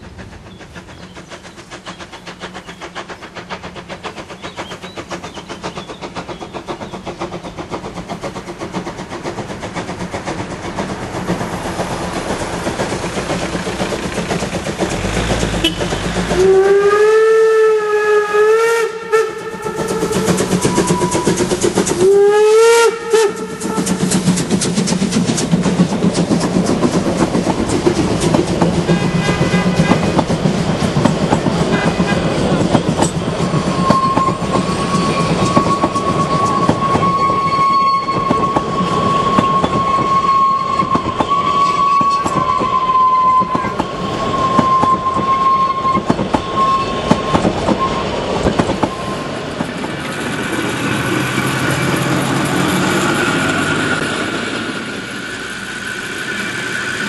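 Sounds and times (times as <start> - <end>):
steam locomotive exhaust beats: 0.0 - 57.0
steam whistle blast: 15.0 - 21.4, 22.0 - 24.1, 33.7 - 48.0.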